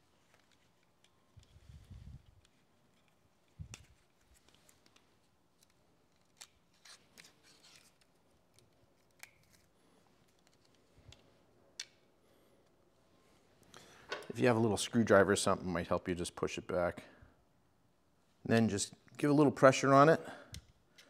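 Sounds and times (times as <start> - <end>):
small clicks and rustles: 0.0 - 12.8
adhesive backing peeled off: 2.4 - 10.9.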